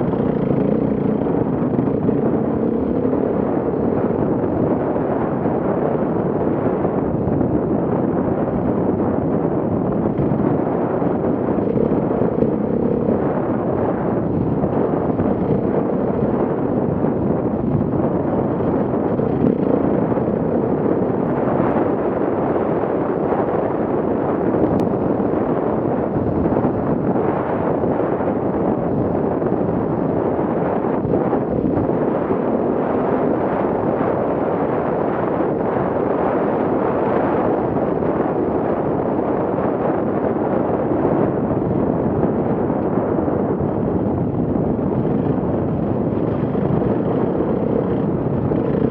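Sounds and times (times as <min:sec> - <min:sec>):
motorcycle engine running: 0:00.0 - 0:23.0, 0:40.9 - 0:48.9
wind buffeting microphone: 0:00.0 - 0:48.9.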